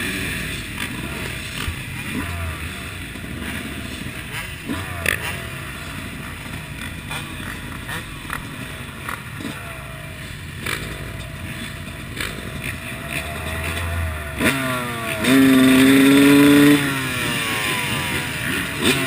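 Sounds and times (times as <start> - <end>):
motocross engine revving: 0.0 - 19.0.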